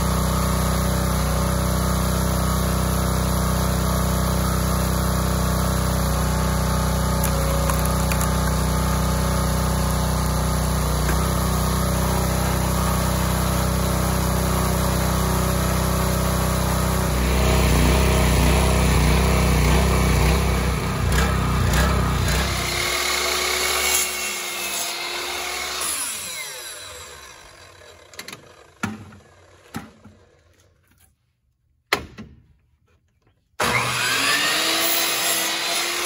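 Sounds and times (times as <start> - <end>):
small gasoline engine running: 0.0 - 30.5, 33.6 - 36.0.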